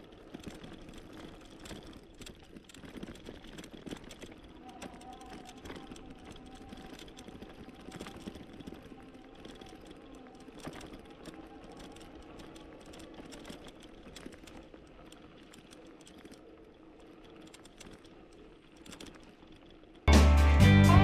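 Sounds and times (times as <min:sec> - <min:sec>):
bike rattles and clicks: 0:00.0 - 0:20.2.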